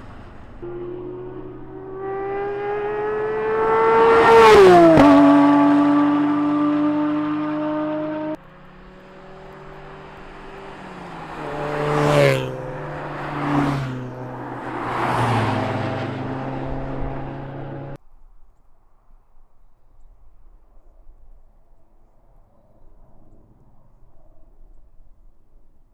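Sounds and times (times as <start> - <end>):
cars driving past: 0.0 - 18.0
faint outdoor background: 0.0 - 25.9.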